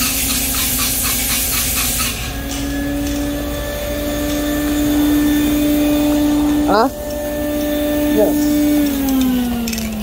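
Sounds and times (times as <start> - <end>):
spray gun air hiss: 0.0 - 2.4
steady motor hum: 0.0 - 10.0.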